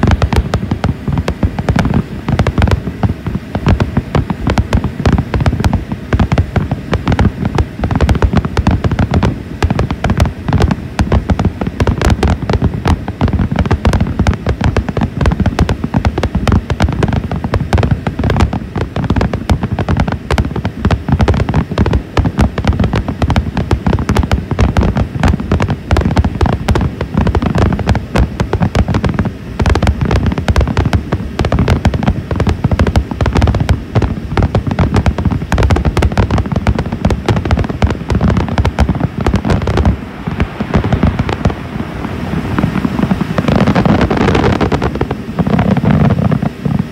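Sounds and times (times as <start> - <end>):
fireworks booming and crackling: 0.0 - 46.9.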